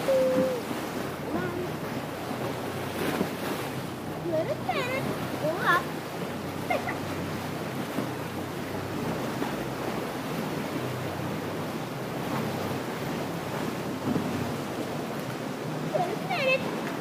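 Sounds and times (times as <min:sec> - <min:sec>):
wind on microphone: 0:00.0 - 0:03.8
outboard motor humming: 0:00.0 - 0:17.0
water sloshing and lapping: 0:00.0 - 0:17.0.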